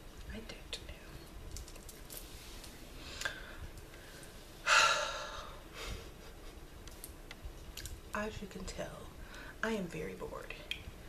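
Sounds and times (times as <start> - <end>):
soft breath: 2.3 - 6.3, 9.2 - 9.6
woman sighing: 4.6 - 5.6.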